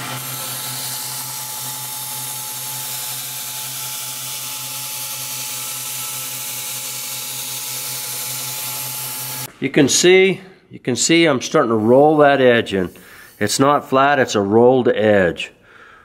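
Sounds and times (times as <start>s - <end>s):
belt grinder grinding steel: 0.0s - 9.5s.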